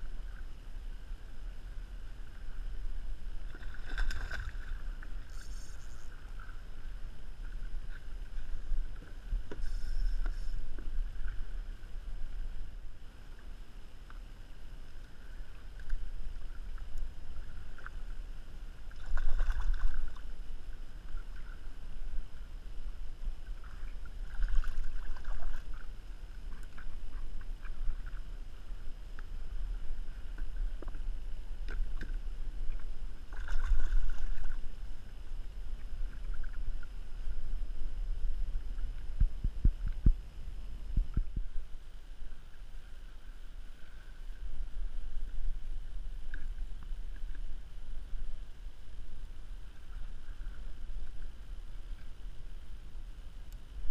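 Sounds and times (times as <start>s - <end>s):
water sloshing around kayak: 2.1s - 12.8s, 15.0s - 22.5s, 23.4s - 28.9s, 29.5s - 35.1s
fish splashing: 3.5s - 6.1s
wind on microphone: 26.5s - 53.9s.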